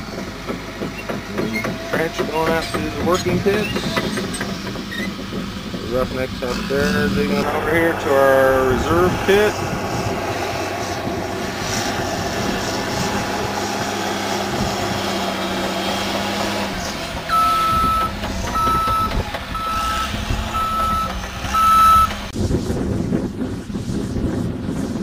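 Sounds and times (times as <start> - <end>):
heavy machine engine running: 0.0 - 25.0
backup alarm beeping: 17.3 - 22.2.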